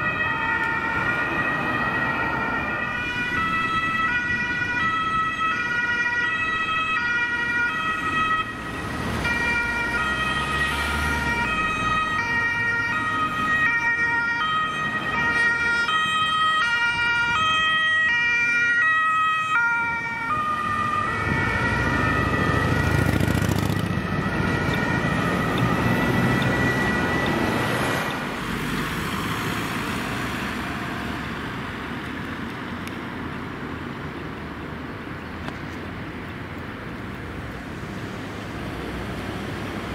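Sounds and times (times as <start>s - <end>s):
two-tone emergency sirens: 0.0s - 31.8s
road traffic noise: 0.0s - 39.9s.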